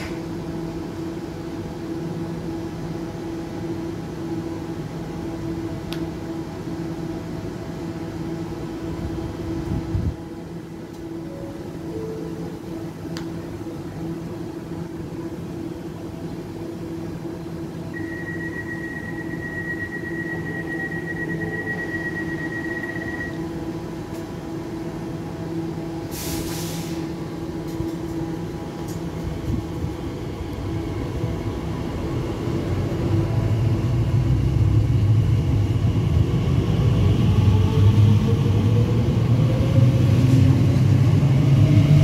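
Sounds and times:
train low rumble: 0:00.0 - 0:42.0
hiss burst: 0:26.1 - 0:27.1.

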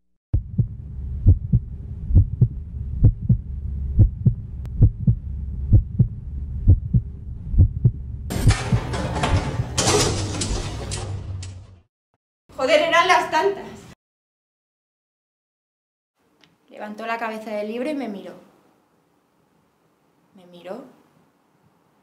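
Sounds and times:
heartbeat thumps: 0:00.4 - 0:09.6.

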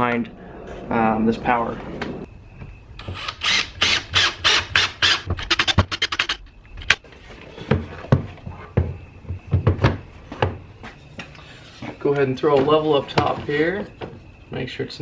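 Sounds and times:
cordless drill driving screw: 0:03.0 - 0:06.4.

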